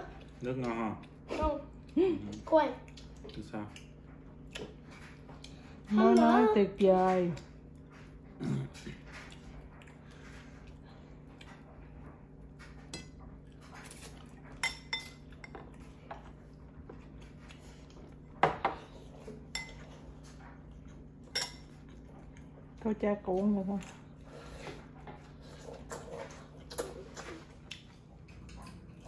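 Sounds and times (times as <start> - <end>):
cutlery clinking on dishes: 13.8 - 15.8, 18.4 - 20.4.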